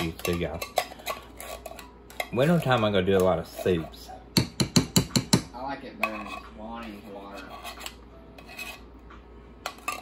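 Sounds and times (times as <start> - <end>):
spoon scraping metal can: 0.0 - 4.1, 6.0 - 8.9.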